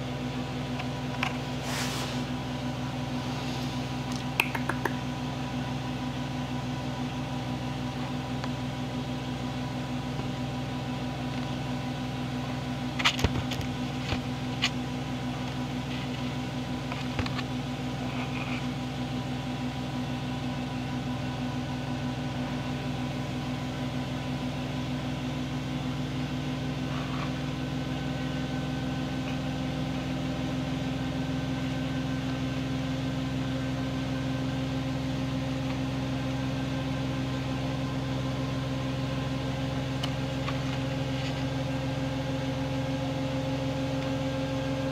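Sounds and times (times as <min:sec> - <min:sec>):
steady mechanical hum: 0:00.0 - 0:44.9
short clicks and taps: 0:04.1 - 0:05.0.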